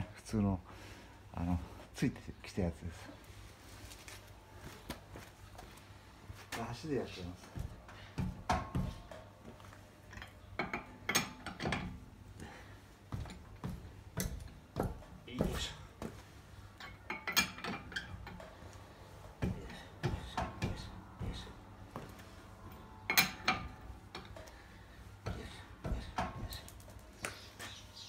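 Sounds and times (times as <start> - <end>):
lug wrench clinking on wheel nuts: 10.1 - 12.0, 16.7 - 18.6, 22.7 - 24.6.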